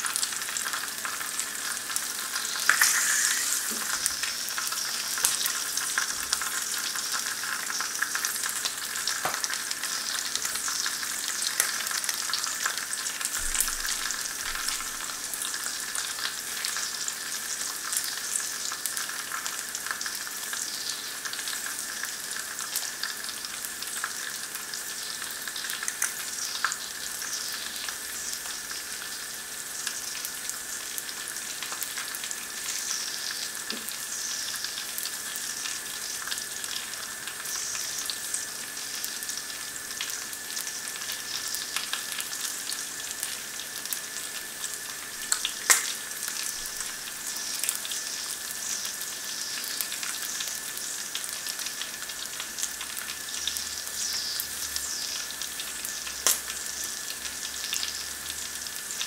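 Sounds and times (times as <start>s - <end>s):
food sizzling in a pan: 0.0s - 59.0s
sharp pop of frying fat: 2.6s - 4.1s, 9.2s - 9.5s, 45.4s - 46.0s, 56.2s - 56.5s.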